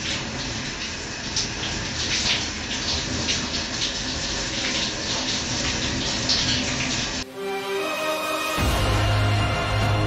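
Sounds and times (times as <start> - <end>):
shower water spattering: 0.0 - 7.3.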